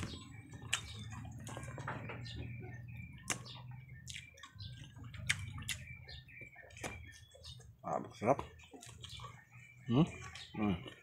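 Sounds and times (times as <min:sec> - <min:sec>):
wet chewing and lip-smacking: 0:00.0 - 0:07.8, 0:08.4 - 0:11.0.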